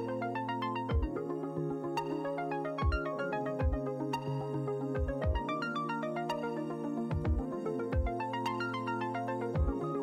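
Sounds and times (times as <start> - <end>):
electronic music: 0.0 - 10.0
deep kick drum: 5.0 - 5.4, 7.1 - 7.4, 9.6 - 9.8.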